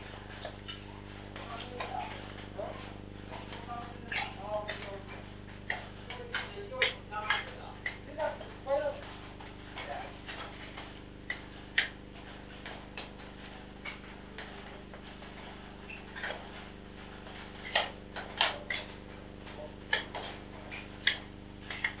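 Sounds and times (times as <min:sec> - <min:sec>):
low electrical hum: 0:00.0 - 0:22.0
sharp clicks and knocks: 0:00.0 - 0:22.0.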